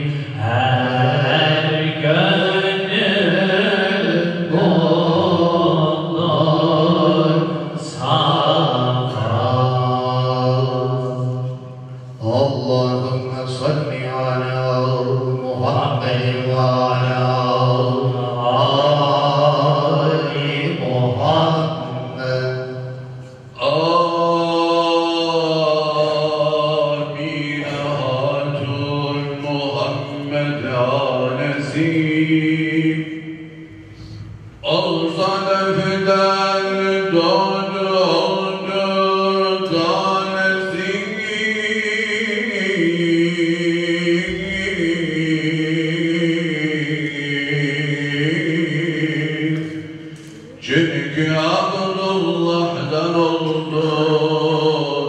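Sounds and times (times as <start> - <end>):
man chanting into a microphone: 0.0 - 55.0
men singing a hymn: 23.6 - 33.3, 34.6 - 55.0.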